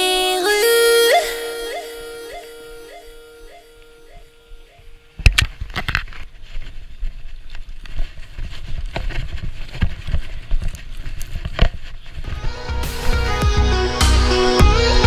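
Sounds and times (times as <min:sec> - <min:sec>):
skis scraping on snow: 0:06.0 - 0:13.4
music: 0:12.3 - 0:15.0.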